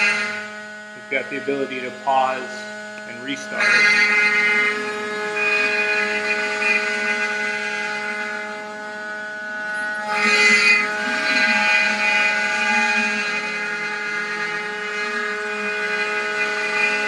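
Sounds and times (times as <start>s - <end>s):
bit cutting wood: 0.0s - 17.0s
router spindle whine: 0.0s - 17.0s.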